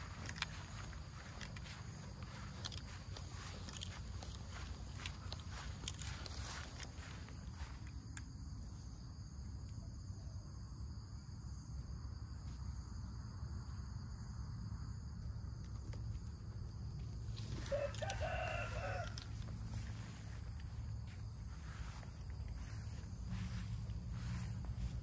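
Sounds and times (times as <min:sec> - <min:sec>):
rooster crowing: 0:17.4 - 0:20.8
steady low rumble: 0:19.1 - 0:25.0.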